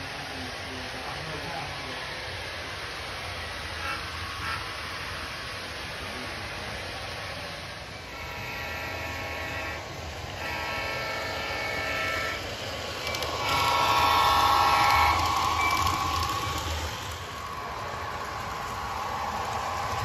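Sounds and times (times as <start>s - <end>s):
low rumble of running train: 0.0s - 20.0s
model locomotive horn blasts: 3.8s - 4.8s, 8.1s - 17.0s.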